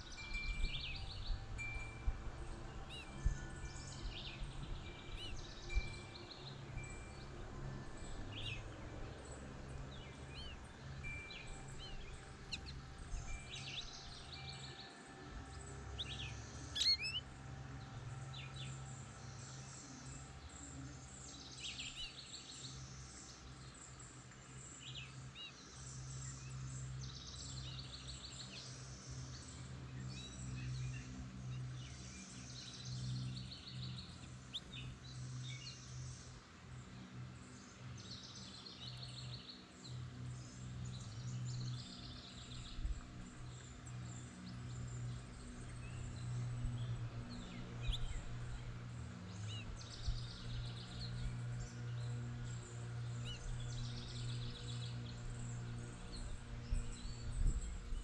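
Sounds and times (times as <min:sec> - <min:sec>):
songbirds chirping in trills: 0:00.0 - 0:58.0
steady low hum: 0:39.6 - 0:58.0.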